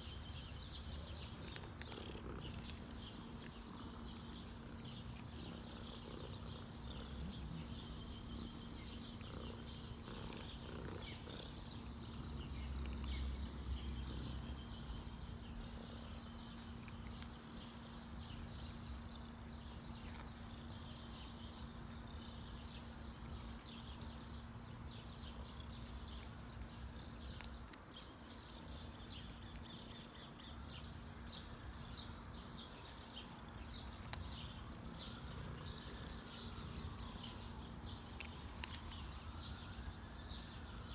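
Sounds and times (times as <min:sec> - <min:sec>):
cat purring: 0:00.7 - 0:17.8, 0:34.0 - 0:39.0.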